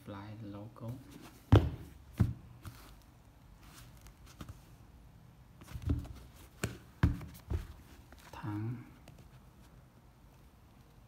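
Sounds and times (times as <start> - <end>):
sneaker knocking on table: 1.5 - 2.4, 5.8 - 7.8.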